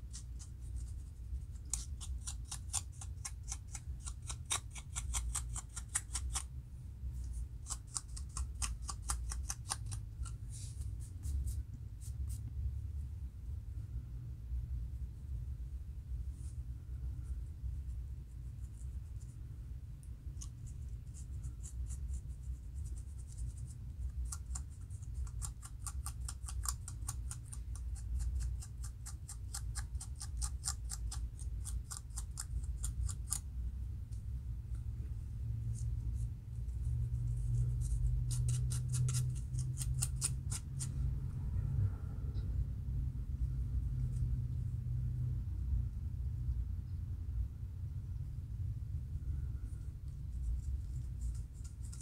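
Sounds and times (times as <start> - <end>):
comb scratching scalp: 0.0 - 6.5, 7.2 - 12.5, 20.3 - 33.5, 35.7 - 41.1, 50.2 - 52.0
steady low hum: 0.0 - 52.0.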